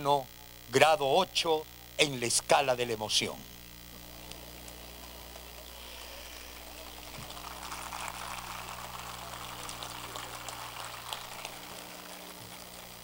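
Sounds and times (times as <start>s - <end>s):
crowd applauding: 5.0s - 13.0s.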